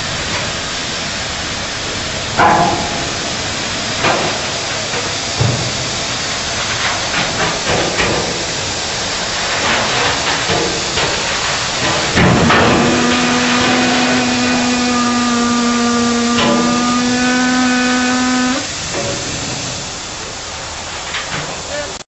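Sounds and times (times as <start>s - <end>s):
compressed air hissing: 0.0s - 21.0s
steady whistling tone: 12.7s - 18.7s.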